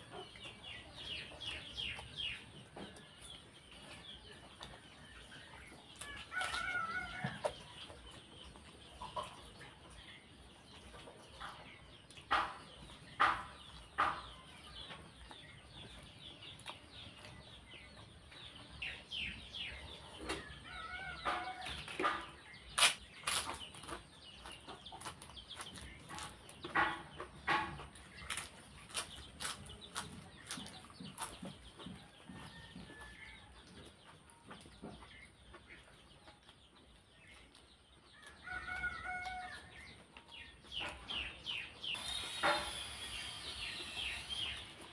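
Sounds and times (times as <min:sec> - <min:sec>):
chicken clucking: 0:00.0 - 0:44.9
wet chewing: 0:15.2 - 0:17.7, 0:21.0 - 0:44.9.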